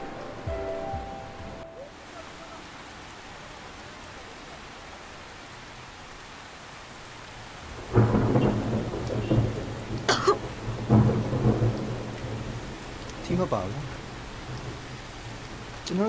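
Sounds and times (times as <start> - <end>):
heavy rain: 0.0 - 16.0
thunder rumbling and cracking: 7.6 - 15.9.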